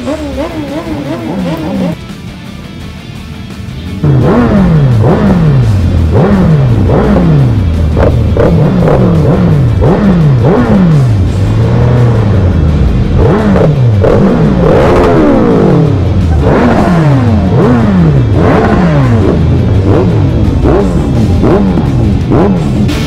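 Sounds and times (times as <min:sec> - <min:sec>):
motorcycle engines revving: 0:00.0 - 0:23.0.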